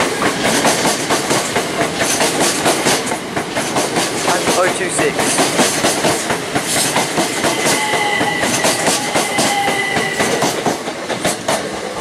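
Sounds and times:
train wheels clattering over rail joints: 0.0s - 12.0s.

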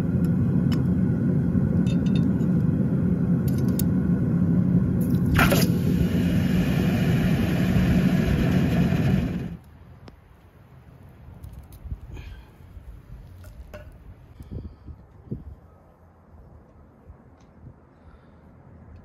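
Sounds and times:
low rumble: 0.0s - 9.6s.

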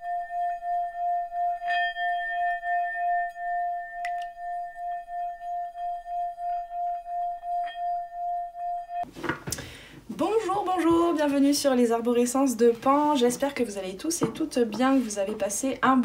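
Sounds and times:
long wavering ringing tone: 0.0s - 9.1s.

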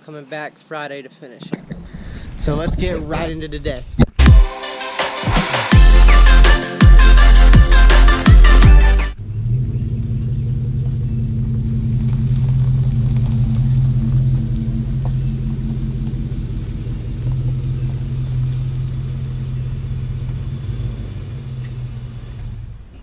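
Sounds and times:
truck engine running: 5.3s - 23.0s.

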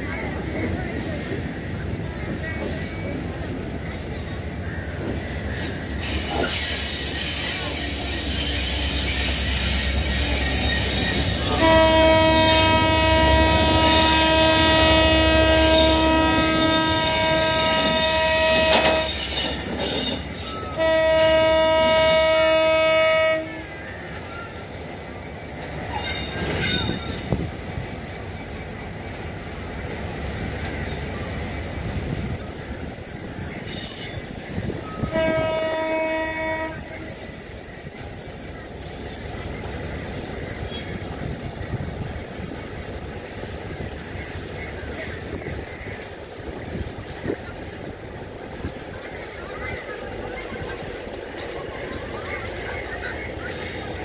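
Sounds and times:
locomotive horn blasts: 11.4s - 19.2s, 20.7s - 23.7s, 35.0s - 37.1s.

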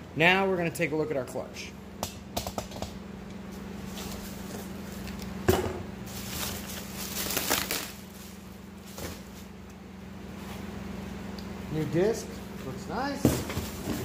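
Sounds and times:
steady low hum: 0.0s - 14.0s
plastic wrapping crinkling: 6.1s - 9.4s.

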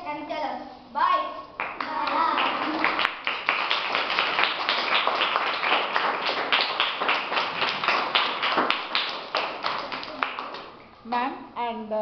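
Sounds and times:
children clapping: 1.6s - 10.8s.

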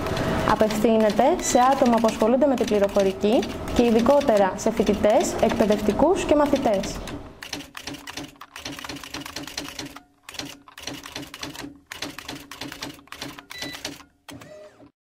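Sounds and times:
rapid key clicking: 0.1s - 4.5s, 6.5s - 14.1s.

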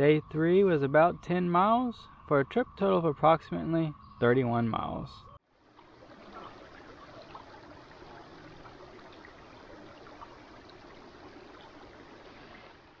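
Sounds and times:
babbling stream: 5.6s - 13.0s.

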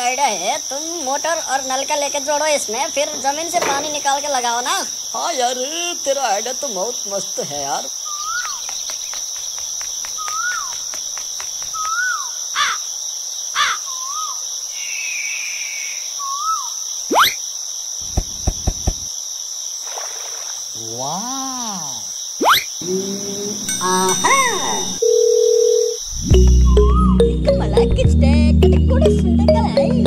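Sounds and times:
crickets chirping: 0.0s - 27.9s
bird calls: 8.0s - 12.9s, 13.5s - 17.4s.

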